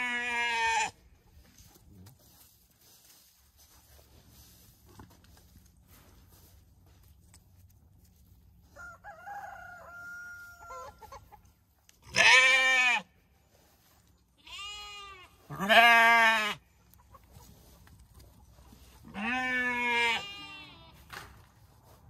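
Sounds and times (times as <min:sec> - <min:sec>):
sheep bleating: 0:00.0 - 0:01.0, 0:12.0 - 0:13.1, 0:14.4 - 0:16.7, 0:19.0 - 0:21.0
rooster crowing: 0:08.6 - 0:11.1.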